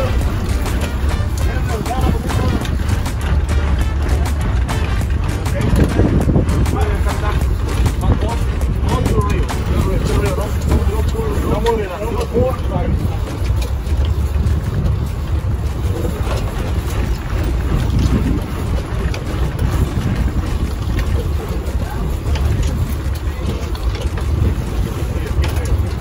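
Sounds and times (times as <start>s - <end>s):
boat engine rumbling: 0.0s - 26.0s
wind buffeting microphone: 0.0s - 26.0s.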